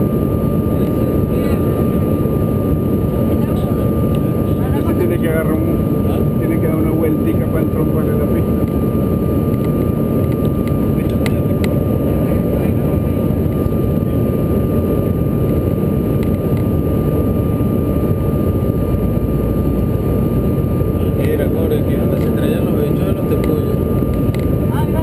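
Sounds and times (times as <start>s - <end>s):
aircraft cabin roar: 0.0s - 25.0s
thin steady whine: 0.0s - 25.0s.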